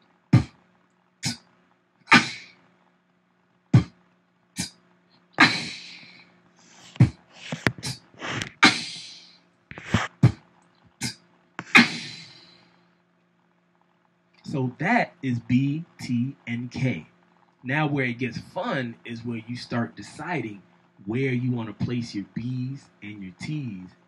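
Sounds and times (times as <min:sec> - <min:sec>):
beatboxing into a microphone: 0:05.4 - 0:06.0, 0:06.8 - 0:10.4, 0:11.0 - 0:12.4, 0:14.5 - 0:17.0, 0:17.7 - 0:23.9.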